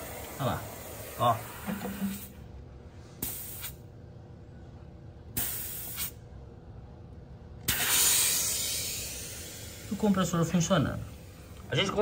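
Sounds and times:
compressor humming: 0:00.0 - 0:12.0
hiss bursts: 0:03.2 - 0:03.8, 0:05.4 - 0:06.2, 0:07.6 - 0:10.1.

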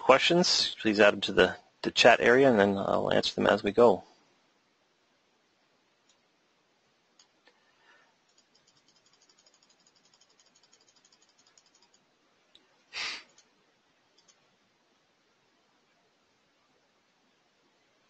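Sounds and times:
faint rapid clicking: 0:07.1 - 0:07.6, 0:08.2 - 0:14.5.

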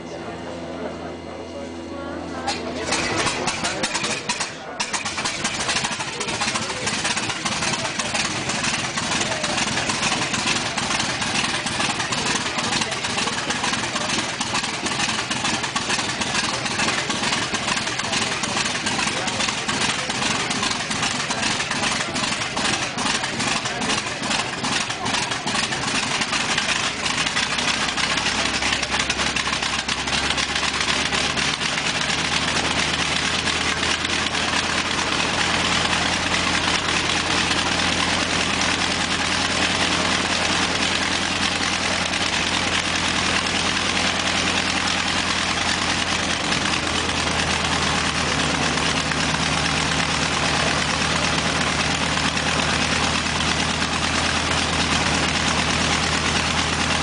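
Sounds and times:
radial aircraft engine idling: 0:00.0 - 0:57.0.

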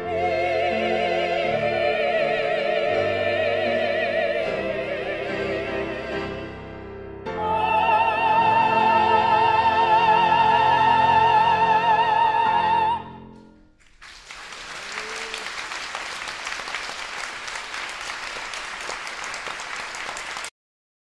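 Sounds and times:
audience applauding: 0:13.8 - 0:20.5.

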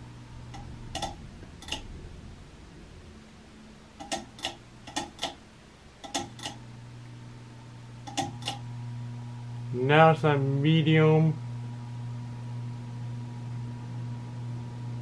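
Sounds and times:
fan motor hum: 0:00.0 - 0:15.0
pull-chain switch clicks: 0:00.5 - 0:01.8, 0:04.0 - 0:05.4, 0:06.0 - 0:06.6, 0:08.1 - 0:08.6.

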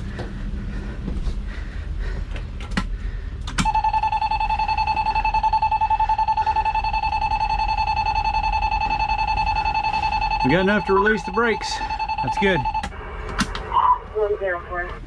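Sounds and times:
high-pitched warning buzzer: 0:03.6 - 0:12.9.

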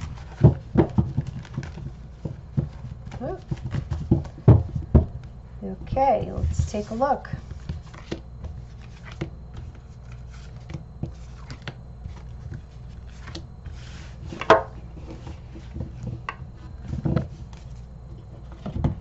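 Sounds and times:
cards tapping on cards: 0:00.0 - 0:05.3, 0:06.2 - 0:17.7
cards sliding on cloth: 0:06.7 - 0:14.4.

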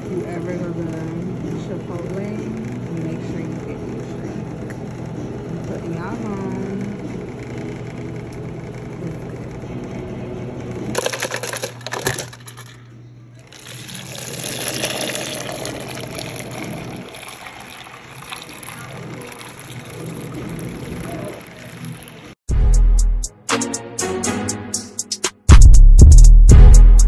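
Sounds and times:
clattering: 0:11.0 - 0:12.9
liquid pouring into paper cup: 0:13.5 - 0:22.4.

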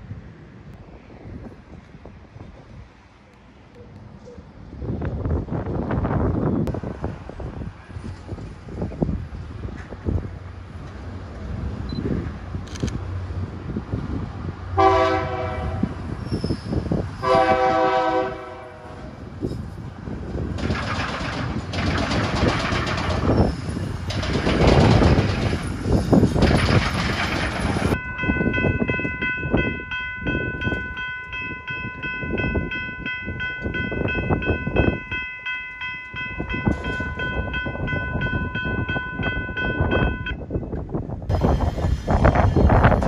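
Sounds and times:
wind gusting on microphone: 0:00.0 - 0:43.0
railroad crossing bell ringing: 0:27.9 - 0:40.6.

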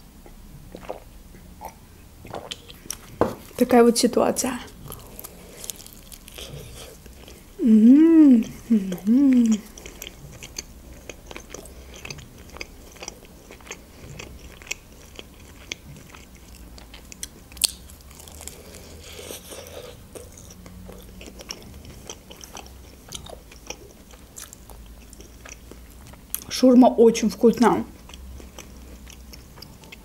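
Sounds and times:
chewing with wet mouth clicks: 0:00.7 - 0:03.2, 0:08.4 - 0:26.5, 0:27.9 - 0:30.0
bite into wrap: 0:04.8 - 0:07.2.

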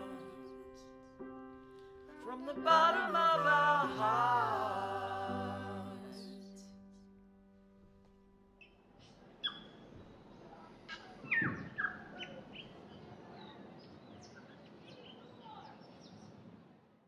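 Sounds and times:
faint outdoor hiss: 0:00.0 - 0:17.0
small birds chirping: 0:08.6 - 0:16.6.

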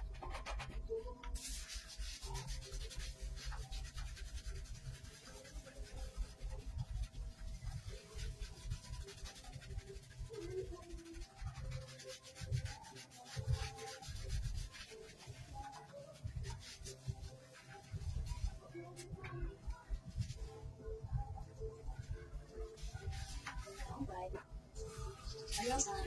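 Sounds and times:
hands rubbing wet fur: 0:01.4 - 0:19.1, 0:24.8 - 0:26.0.

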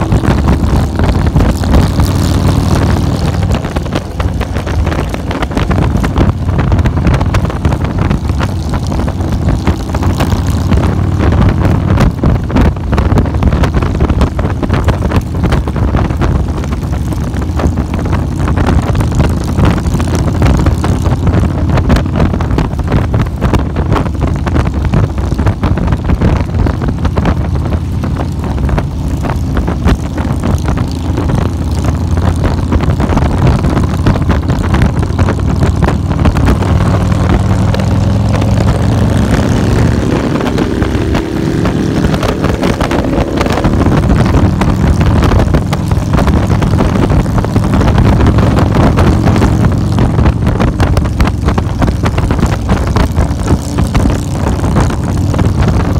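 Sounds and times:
motorcycle engine running: 0:00.0 - 0:55.9
wind buffeting on microphone: 0:00.0 - 0:55.9.

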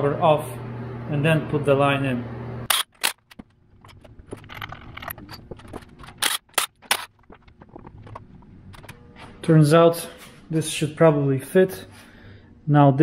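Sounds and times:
impact driver bursts: 0:02.7 - 0:03.3
tools clicking and clattering: 0:02.7 - 0:09.0.

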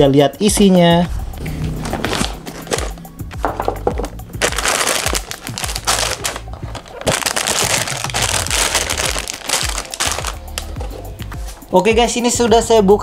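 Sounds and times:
plastic bags crinkling: 0:03.5 - 0:11.0.

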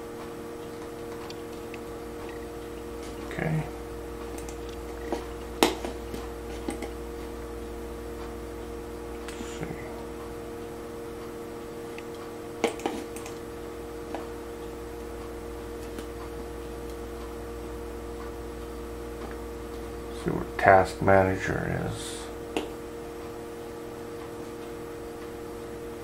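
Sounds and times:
steady hum: 0:00.0 - 0:26.0
computer mouse clicks: 0:04.3 - 0:05.9.

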